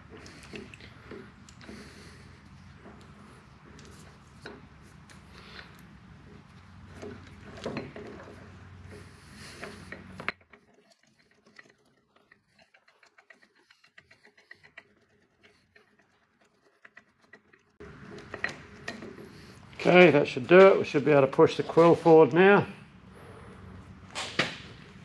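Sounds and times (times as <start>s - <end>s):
lathe handwheel clicking: 6.3s - 19.3s.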